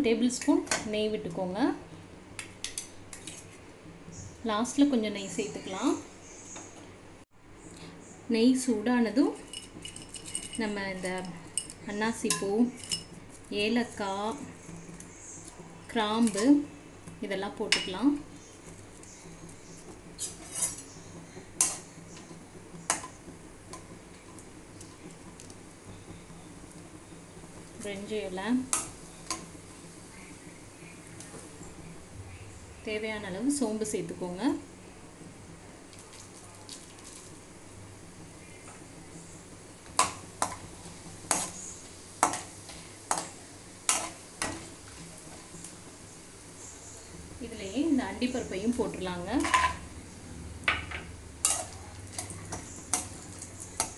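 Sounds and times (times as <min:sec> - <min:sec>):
ghee sizzling: 0:00.0 - 0:53.9
spices frying in hot fat: 0:07.5 - 0:53.9
metal ladle scraping a pan: 0:20.2 - 0:21.0, 0:51.4 - 0:53.9.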